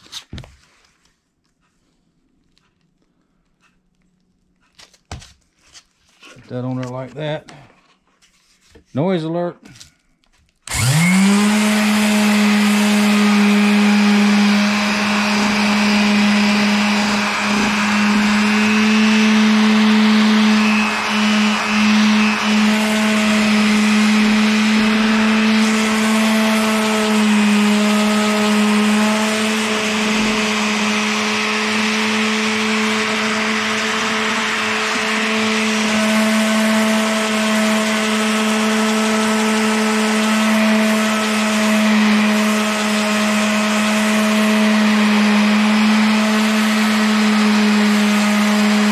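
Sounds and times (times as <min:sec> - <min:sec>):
sander humming on metal: 0:10.7 - 0:48.9.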